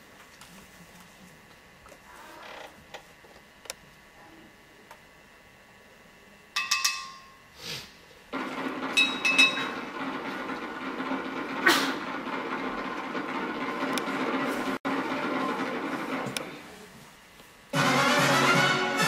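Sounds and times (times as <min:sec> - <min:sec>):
glassy clink: 0:06.6 - 0:07.5.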